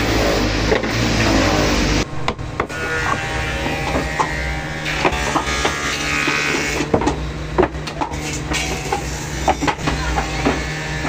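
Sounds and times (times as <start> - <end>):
electric motor humming: 0.9 - 11.0.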